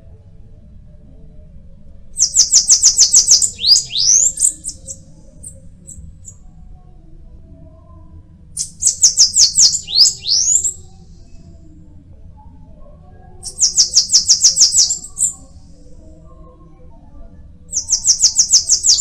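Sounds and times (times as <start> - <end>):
bird singing high sweeping notes: 2.2 - 6.1, 8.6 - 11.0, 13.4 - 15.6, 17.7 - 19.0.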